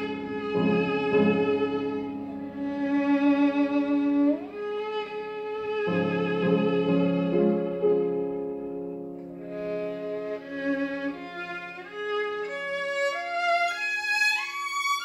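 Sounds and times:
piano chords: 0.0 - 14.2
violin playing slow notes: 0.0 - 15.0.

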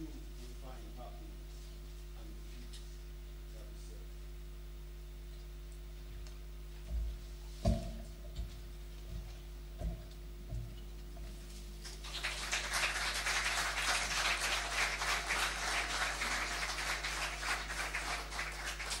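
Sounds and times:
low electrical hum: 0.0 - 19.0
audience applause: 11.8 - 19.0.

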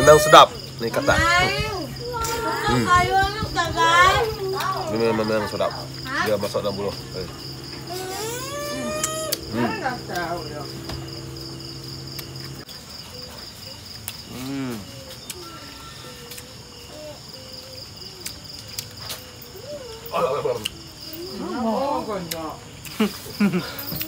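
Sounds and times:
people's voices: 0.0 - 12.6
crickets chirping: 0.0 - 24.0.

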